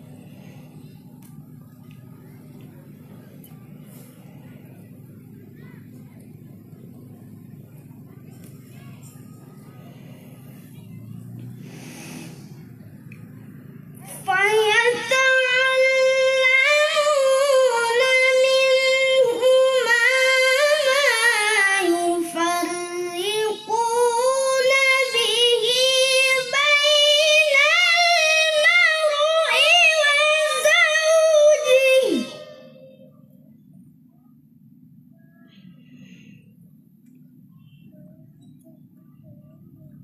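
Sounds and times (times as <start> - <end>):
boy chanting melodically: 1.9 - 33.1.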